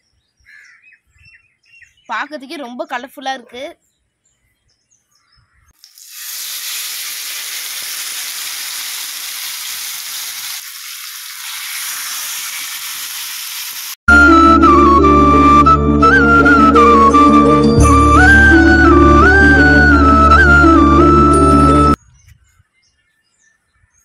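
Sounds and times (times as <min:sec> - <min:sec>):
fish sizzling on griddle: 0:05.8 - 0:14.0
flute-led folk music: 0:14.1 - 0:22.0.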